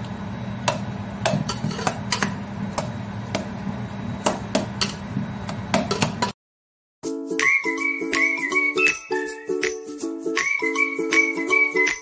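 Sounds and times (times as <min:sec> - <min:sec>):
metal masher knocking steel pot: 0:01.2 - 0:02.3.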